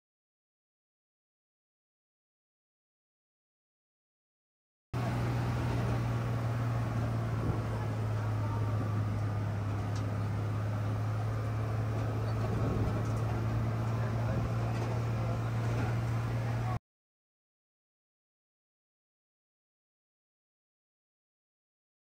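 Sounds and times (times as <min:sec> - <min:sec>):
truck engine drone: 0:05.0 - 0:16.8.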